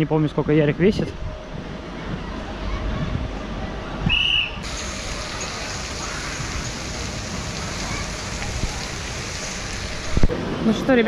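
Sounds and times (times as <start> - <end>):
water rushing and splashing: 4.6 - 11.0.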